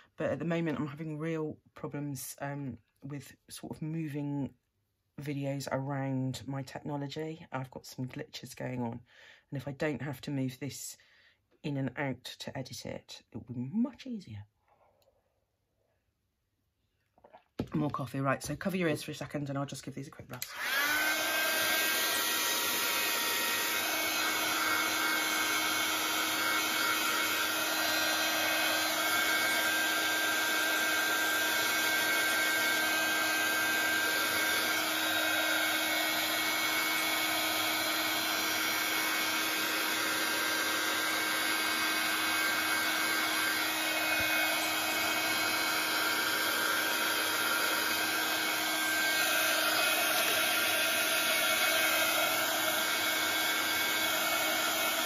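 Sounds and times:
heat gun blowing air: 20.4s - 55.0s.

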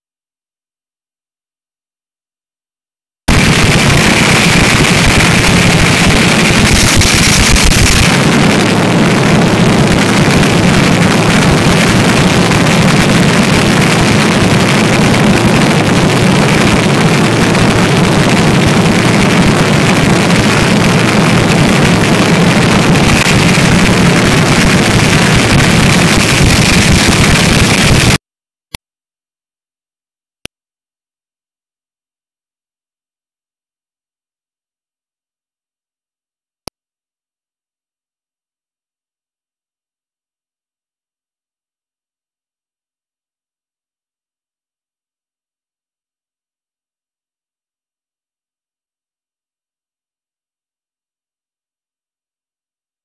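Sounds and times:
dragster engine running loud: 3.3s - 28.2s.

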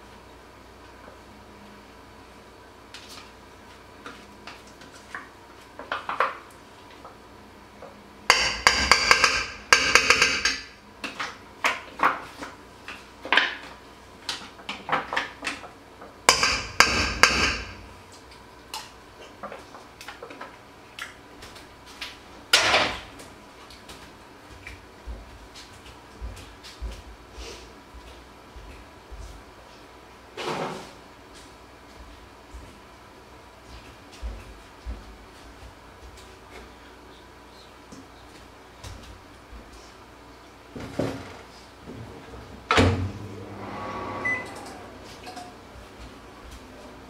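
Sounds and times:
dishes clattering: 8.3s - 10.8s, 16.3s - 17.8s.

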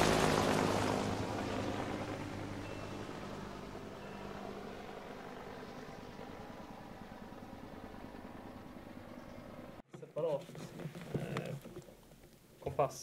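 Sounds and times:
helicopter engine and rotor hum: 0.0s - 9.8s.

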